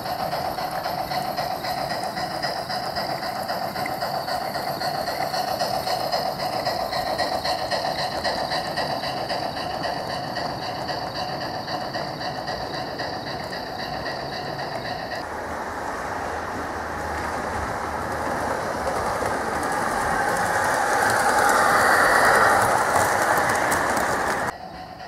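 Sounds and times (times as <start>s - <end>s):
model train wheels rolling on rails: 0.0s - 25.0s
model train motor whine: 19.3s - 24.5s.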